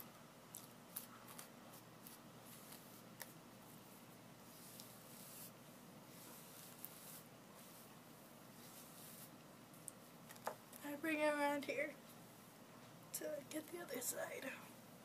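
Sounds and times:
hairbrush swishing through hair: 0:01.0 - 0:07.9, 0:08.5 - 0:09.4.

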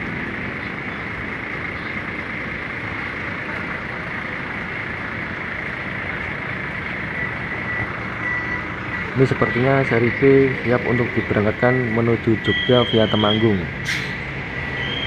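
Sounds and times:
coach engine idling: 0:00.0 - 0:15.0
reversing beeper: 0:07.0 - 0:14.1, 0:14.7 - 0:15.0.

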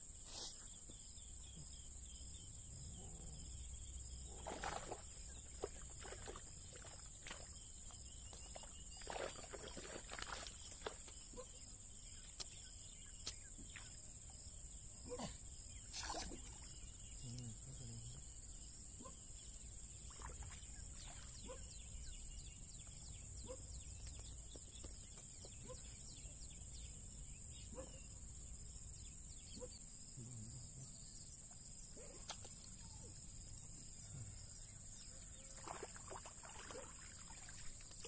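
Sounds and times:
insects droning: 0:00.0 - 0:38.0.

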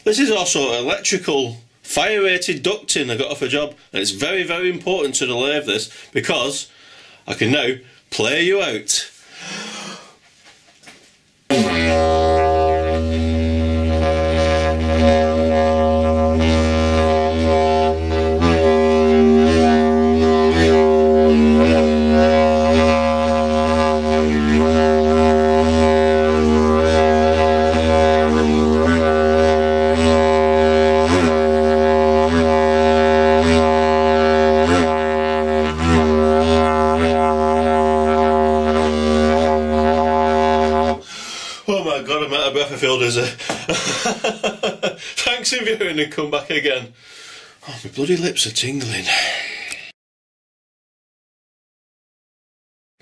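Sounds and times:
ducting blown as a didgeridoo: 0:11.5 - 0:41.3.

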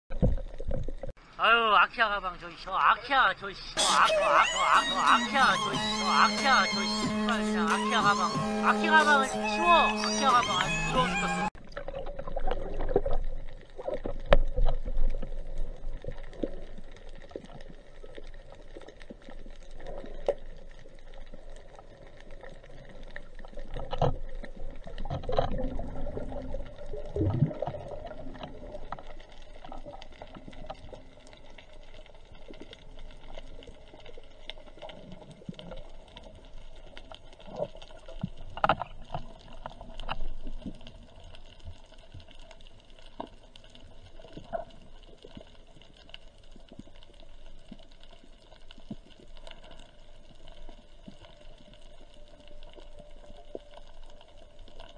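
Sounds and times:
muffled underwater water wash: 0:11.6 - 0:54.9.

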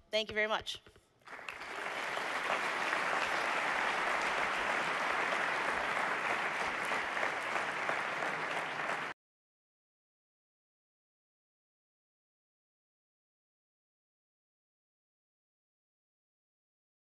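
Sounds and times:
audience applauding: 0:01.2 - 0:09.2.

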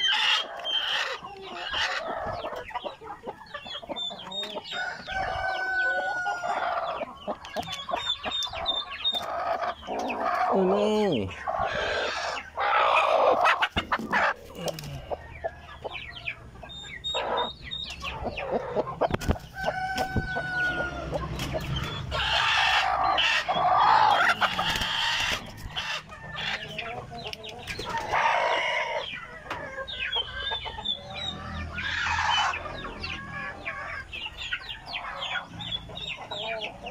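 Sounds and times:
chickens clucking: 0:00.0 - 0:36.9
rooster crowing: 0:04.7 - 0:07.0, 0:19.6 - 0:21.3.

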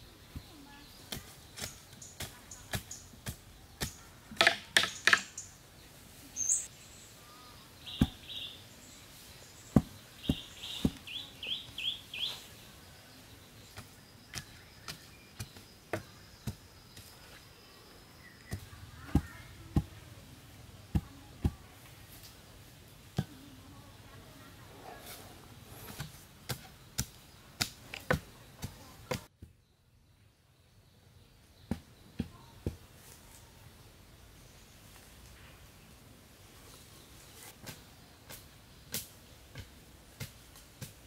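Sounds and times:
birds chirping: 0:00.0 - 0:40.9
wooden poles knocking into ground: 0:01.2 - 0:05.4, 0:07.9 - 0:08.4.

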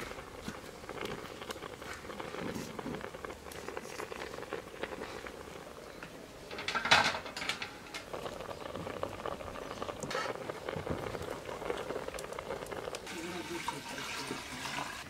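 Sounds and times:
pot bubbling at a boil: 0:00.0 - 0:15.0
metal dishes clattering: 0:06.5 - 0:08.1.

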